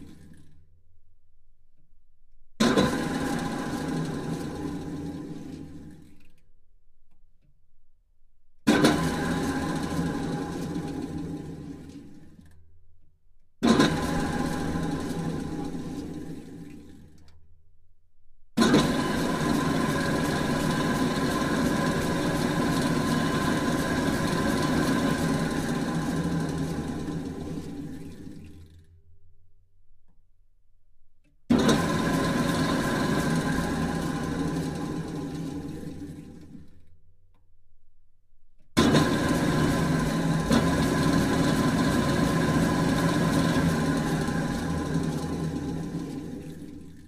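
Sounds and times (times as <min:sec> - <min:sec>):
drill press motor hum: 0:13.6 - 0:17.5, 0:18.6 - 0:29.1, 0:31.2 - 0:37.5, 0:38.6 - 0:47.0.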